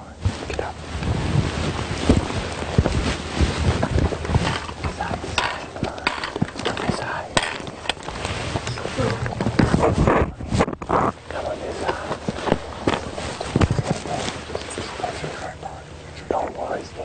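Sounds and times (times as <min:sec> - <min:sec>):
brush rustling: 0:00.0 - 0:17.0
wind rumbling on microphone: 0:00.0 - 0:17.0
footsteps over loose rocks: 0:00.2 - 0:15.3.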